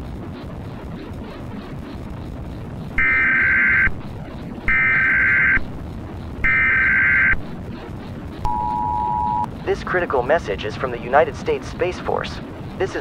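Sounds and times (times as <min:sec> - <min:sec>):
low rumbling drone: 0:00.0 - 0:11.7
warbling digital data tones: 0:03.0 - 0:04.0, 0:04.7 - 0:05.8, 0:06.4 - 0:07.4, 0:08.5 - 0:09.5
two-tone attention signal: 0:08.5 - 0:09.5.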